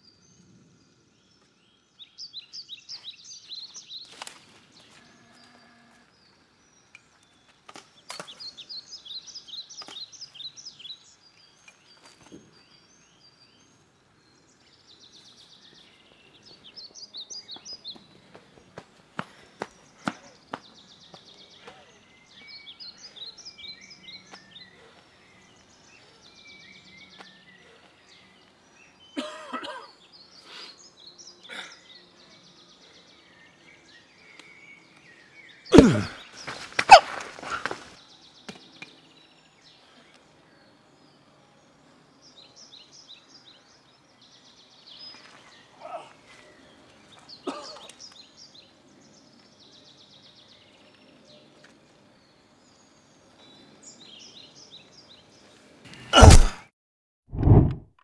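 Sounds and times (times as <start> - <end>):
small birds chirping: 0.0 - 56.7
person grunting: 35.7 - 36.2, 56.2 - 56.6
scuffle with hard hits: 35.8 - 38.0, 56.2 - 56.6.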